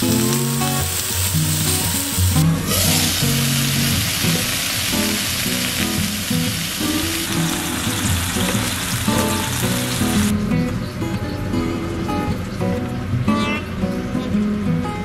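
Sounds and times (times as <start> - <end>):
meat sizzling in frying pan: 0.0 - 10.3.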